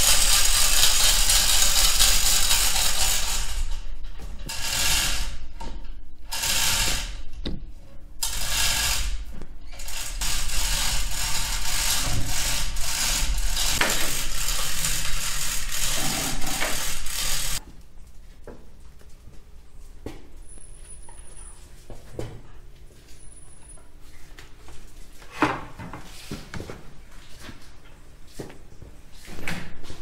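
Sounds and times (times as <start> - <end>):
ratcheting mechanism: 0.0 - 5.4, 6.3 - 7.3, 8.2 - 17.6.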